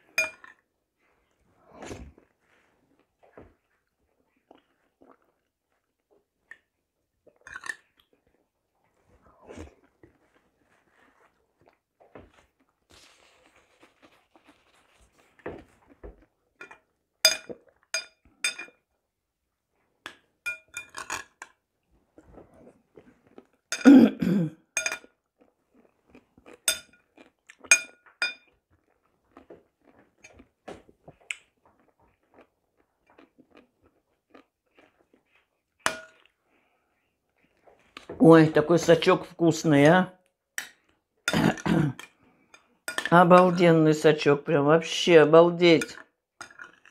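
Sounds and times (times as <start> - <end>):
soft chewing: 0.0 - 19.0, 20.9 - 23.8, 24.6 - 38.2, 46.0 - 46.9
metal spoon clinking on glass bowl: 0.2 - 0.6, 16.6 - 18.7, 20.5 - 21.2, 24.8 - 25.1, 26.7 - 27.0, 27.7 - 28.5.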